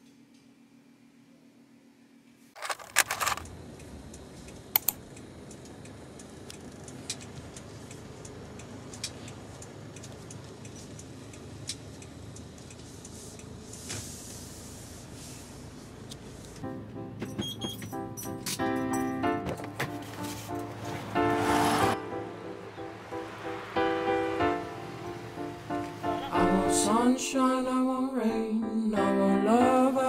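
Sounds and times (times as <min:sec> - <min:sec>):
clattering clicks: 0:02.6 - 0:03.6
car cabin road rumble: 0:03.0 - 0:18.6, 0:19.4 - 0:27.8.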